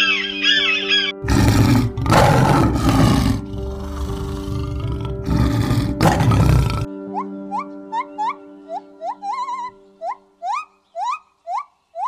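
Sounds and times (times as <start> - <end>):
background music: 0.0 - 11.6
large animal roaring: 1.2 - 6.9.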